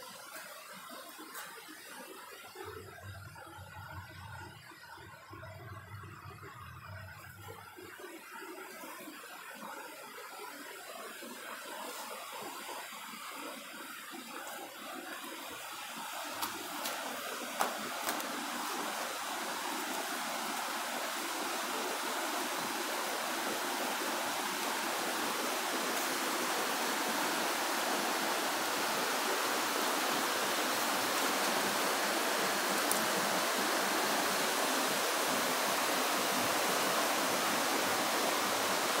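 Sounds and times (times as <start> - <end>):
water rushing in rocky stream: 10.0 - 39.0.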